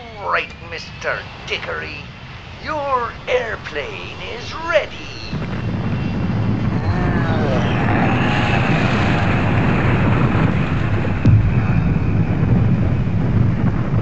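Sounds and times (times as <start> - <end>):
cargo plane engines diving: 0.0 - 14.0
crash impact: 11.2 - 14.0.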